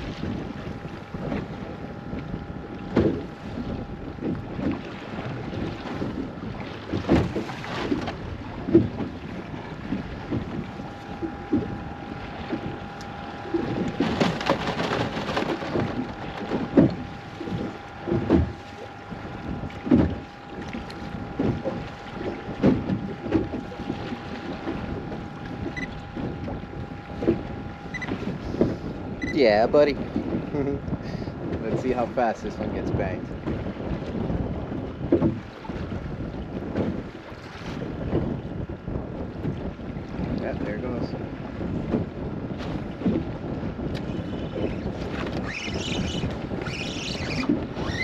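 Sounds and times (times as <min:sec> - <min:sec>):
small waves slapping boat hull: 0:00.0 - 0:48.0
wind buffeting microphone: 0:00.0 - 0:48.0.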